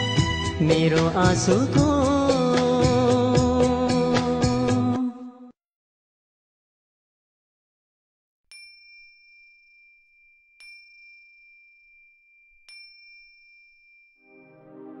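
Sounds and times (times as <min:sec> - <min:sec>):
small bell ringing: 0:08.5 - 0:14.3.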